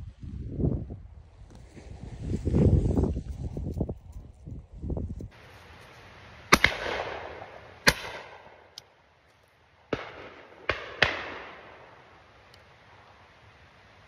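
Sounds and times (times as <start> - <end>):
shotgun shots: 6.5 - 8.7, 9.9 - 12.0
echoing tail: 6.5 - 8.8, 9.9 - 12.4.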